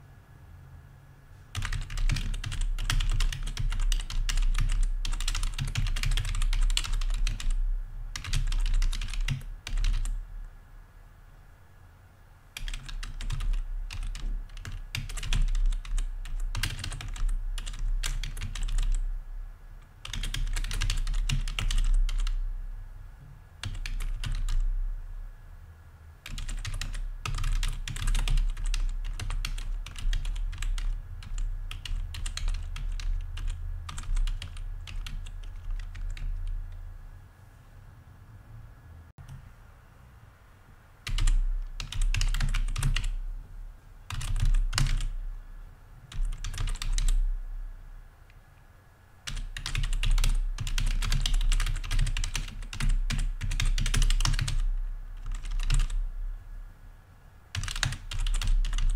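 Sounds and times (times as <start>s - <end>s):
computer keyboard typing: 1.5s - 10.2s, 12.6s - 19.0s, 20.0s - 22.4s, 23.6s - 24.7s, 26.2s - 36.8s, 41.0s - 43.2s, 44.1s - 45.2s, 46.1s - 47.2s, 49.2s - 56.0s, 57.5s - 58.9s.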